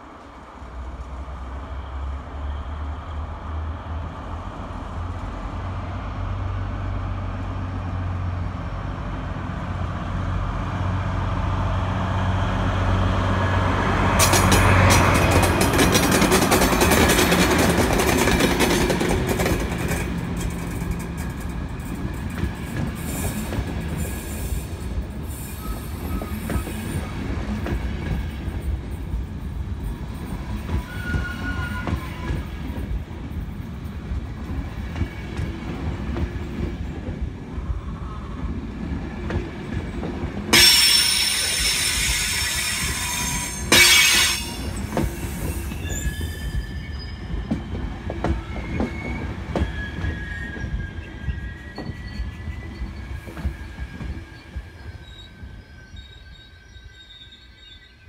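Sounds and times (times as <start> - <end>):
train wheels rumbling over rail joints: 3.2 - 57.8
loud high wheel screeches: 23.0 - 27.2, 30.2 - 32.8, 40.5 - 58.0
faint wheel squeals: 24.0 - 27.2, 30.3 - 32.8, 40.6 - 58.0.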